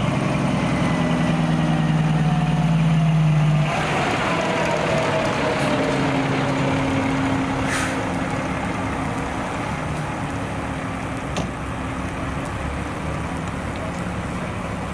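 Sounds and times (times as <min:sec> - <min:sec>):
fire engine diesel engine: 0:00.0 - 0:14.9
air brakes hissing: 0:07.6 - 0:08.2.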